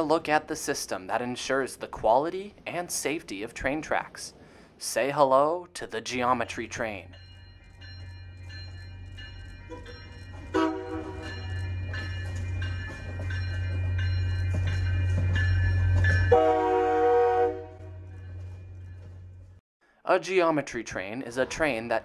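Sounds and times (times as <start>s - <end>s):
train rumbling past: 5.9s - 19.6s
crossing warning bell ringing: 6.2s - 19.5s
train horn: 10.5s - 11.3s, 16.3s - 18.1s.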